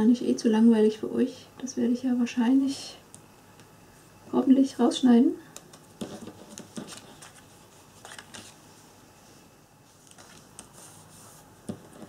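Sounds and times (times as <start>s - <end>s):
card rustling: 5.6s - 8.6s, 10.0s - 10.9s.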